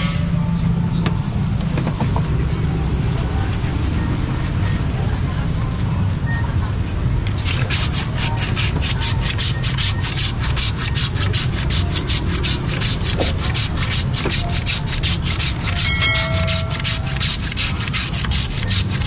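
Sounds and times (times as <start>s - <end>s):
ice shaver rasping scrape: 7.4s - 19.0s.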